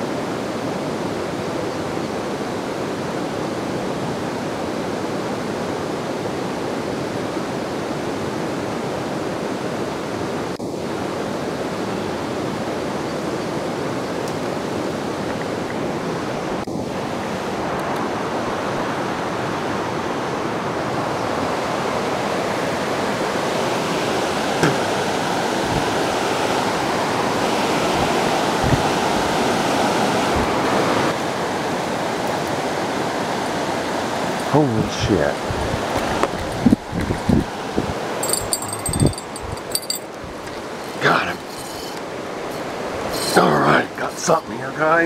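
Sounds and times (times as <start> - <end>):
river rapids rushing: 13.7 - 36.3.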